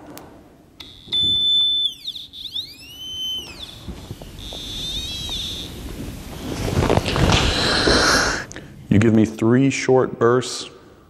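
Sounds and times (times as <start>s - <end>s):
high gliding electronic tone: 0.8s - 7.8s.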